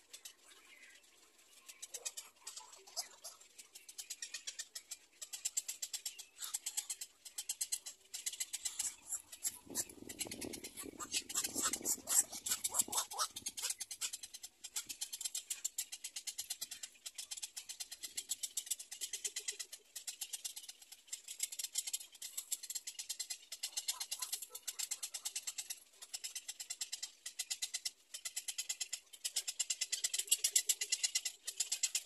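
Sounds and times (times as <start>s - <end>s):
heron chicks chattering: 1.6s - 18.4s, 21.4s - 32.0s.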